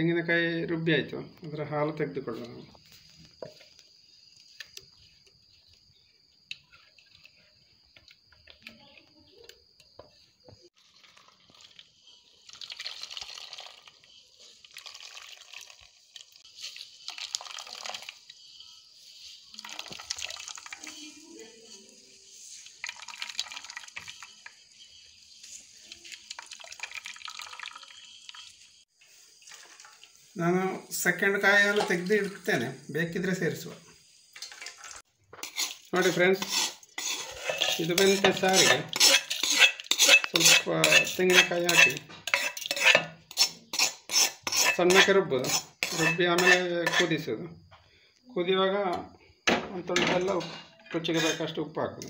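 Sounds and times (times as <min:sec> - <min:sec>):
liquid splashing into steel bowl: 0:19.5 - 0:21.0, 0:22.5 - 0:24.6, 0:25.8 - 0:28.7, 0:34.3 - 0:43.1.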